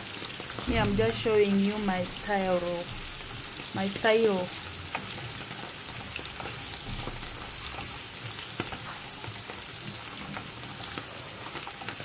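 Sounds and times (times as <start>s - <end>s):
mushrooms sizzling in hot oil: 0.0s - 12.0s.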